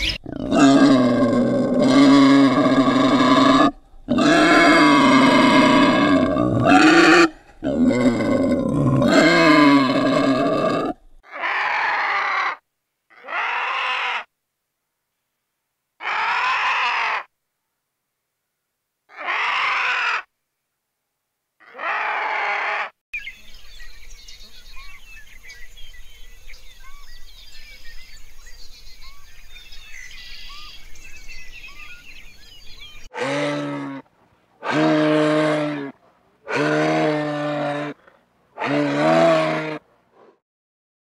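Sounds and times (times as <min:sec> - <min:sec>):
birds chirping: 0:00.0 - 0:07.7, 0:23.2 - 0:33.6
deep animal calls: 0:00.1 - 0:14.3, 0:21.6 - 0:22.9, 0:33.1 - 0:40.4
short loud animal calls: 0:11.2 - 0:14.3, 0:16.0 - 0:17.3, 0:19.1 - 0:20.3, 0:21.6 - 0:23.0.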